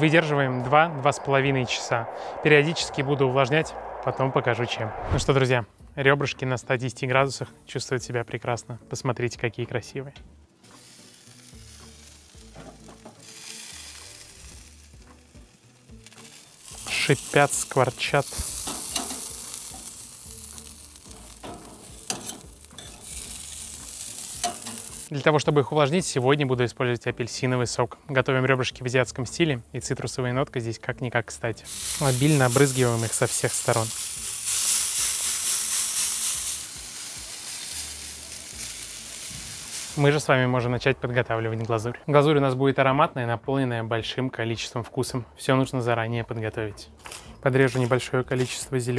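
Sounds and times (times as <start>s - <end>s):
ribs sizzling on grill: 10.5s - 27.6s, 31.6s - 40.3s.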